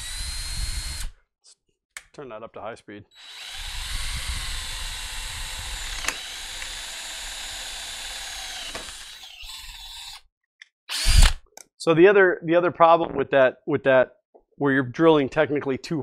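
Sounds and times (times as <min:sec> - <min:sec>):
power drill whining: 0:00.0 - 0:01.2, 0:03.1 - 0:10.2, 0:10.9 - 0:11.4.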